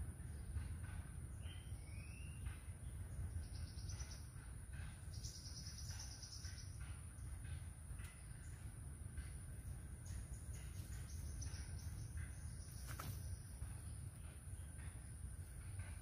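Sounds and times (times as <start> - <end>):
steady low rumble: 0.0 - 16.0
bird whistle: 1.5 - 2.5.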